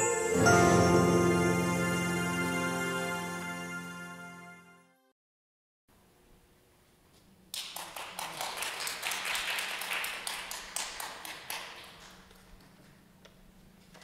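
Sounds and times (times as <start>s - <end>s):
audience applause: 7.6s - 12.8s.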